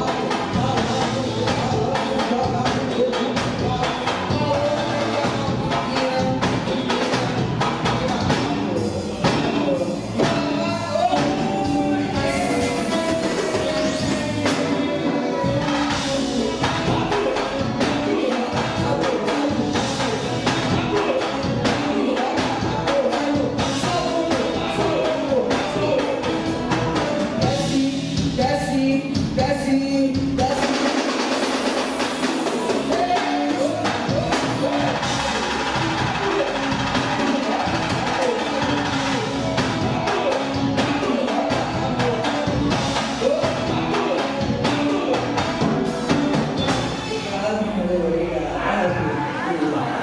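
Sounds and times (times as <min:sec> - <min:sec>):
steady drum beat: 0:00.0 - 0:47.4
band playing: 0:00.0 - 0:50.0
electric bass guitar: 0:00.0 - 0:50.0
person singing: 0:00.0 - 0:50.0.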